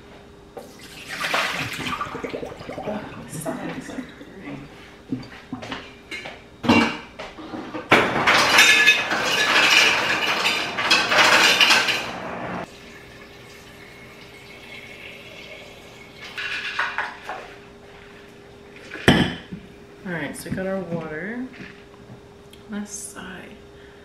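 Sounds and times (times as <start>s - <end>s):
ice and water dispensing: 0.6s - 4.4s, 7.8s - 19.2s.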